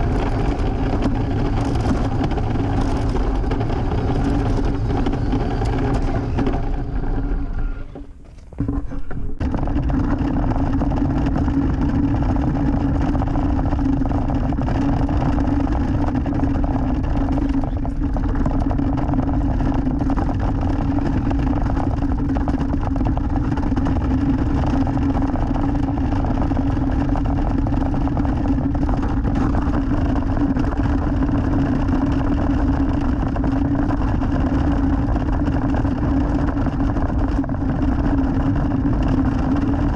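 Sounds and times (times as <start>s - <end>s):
electric motor whine: 0.0s - 10.4s
tyres rumbling on rough concrete: 0.0s - 39.9s.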